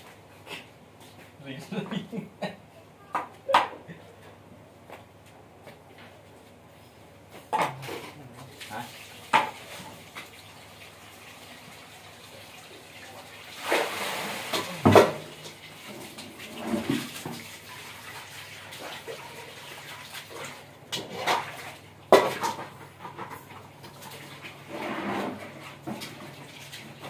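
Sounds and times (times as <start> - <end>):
water splashing on concrete: 13.5 - 22.7.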